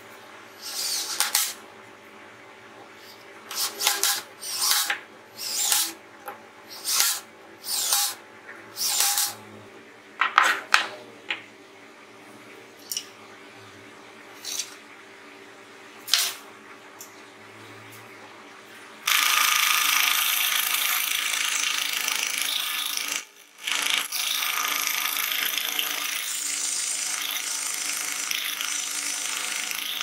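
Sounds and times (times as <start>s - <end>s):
drill driving screws into wood: 0.6s - 1.6s, 3.5s - 6.0s, 6.7s - 8.2s, 8.8s - 9.4s, 19.0s - 30.0s.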